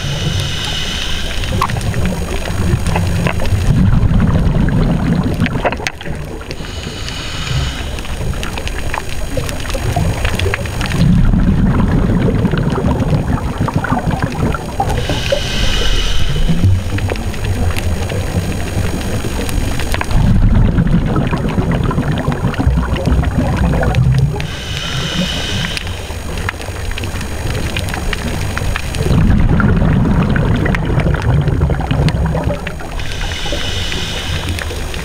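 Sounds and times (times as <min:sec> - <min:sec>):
regulator inhalation hiss: 0:00.0 - 0:03.2, 0:06.4 - 0:10.2, 0:14.8 - 0:17.3, 0:24.4 - 0:26.8, 0:32.8 - 0:35.0
exhaled bubbles gurgling underwater: 0:00.0 - 0:35.0.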